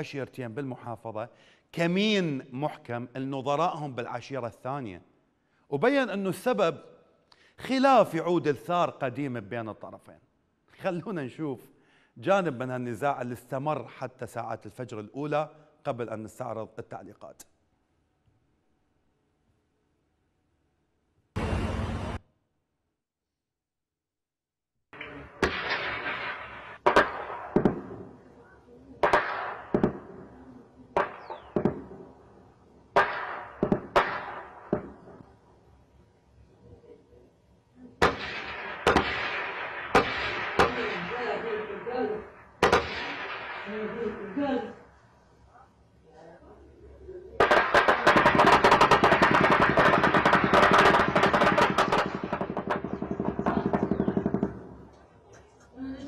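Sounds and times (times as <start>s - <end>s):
gunshots echoing: 25.4s - 28.4s, 29.0s - 35.3s, 38.0s - 44.6s, 47.4s - 55.0s
automatic gunfire: 29.0s - 30.4s, 33.0s - 35.0s, 38.0s - 44.2s, 47.4s - 54.9s.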